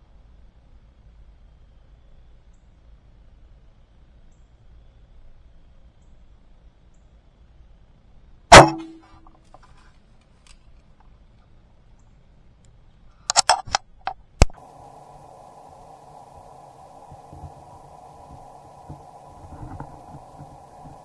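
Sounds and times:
bow shot crack: 0:08.5 - 0:09.0
steady hum: 0:08.5 - 0:09.2, 0:14.4 - 0:21.0.

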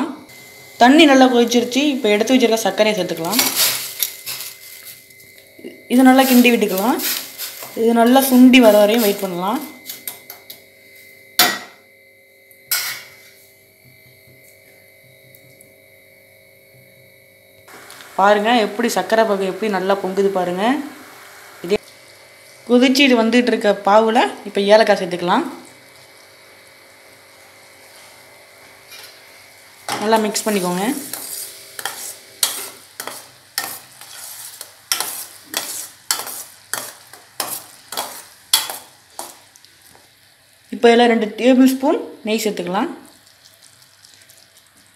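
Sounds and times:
faint steady hum: 0:00.0 - 0:44.9
spoon clanking on steel pan: 0:31.1 - 0:39.4
syrup bubbling: 0:43.1 - 0:44.9.

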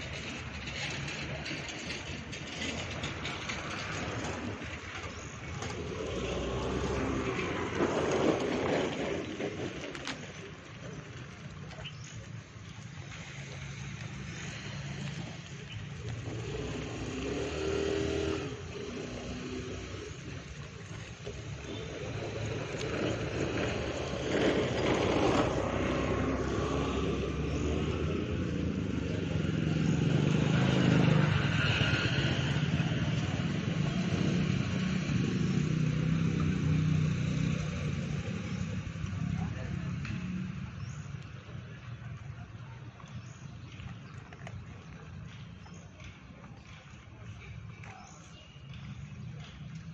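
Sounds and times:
vehicle engine running: 0:00.0 - 0:49.9.

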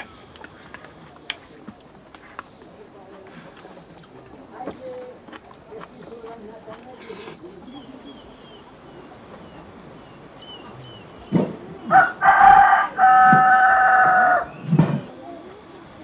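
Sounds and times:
rooster crowing: 0:11.8 - 0:14.6.

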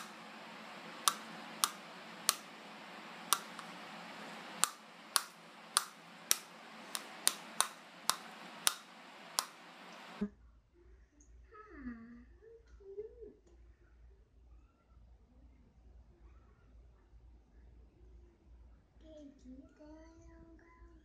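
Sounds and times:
steady hiss: 0:00.0 - 0:10.2.

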